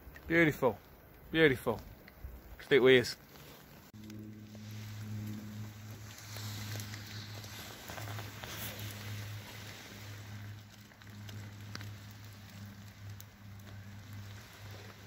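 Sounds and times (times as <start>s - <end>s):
light rain pattering: 0.0s - 15.0s
low hum: 3.2s - 15.0s.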